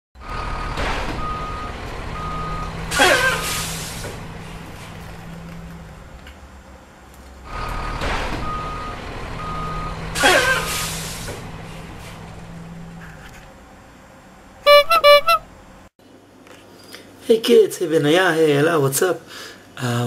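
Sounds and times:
diesel truck engine running: 0.2s - 15.9s
reversing alarm beeping: 0.4s - 3.5s, 7.8s - 10.1s, 14.7s - 15.4s
air brakes hissing: 0.8s - 5.0s, 9.6s - 12.3s.

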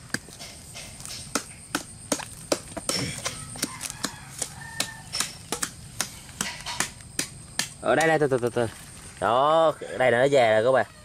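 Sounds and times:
machete chopping palm trunk: 0.0s - 8.2s.

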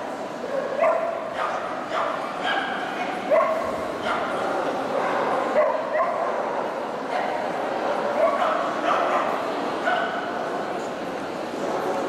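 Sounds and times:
crowd chatter: 0.0s - 12.0s
dogs barking and yipping: 0.6s - 6.4s.

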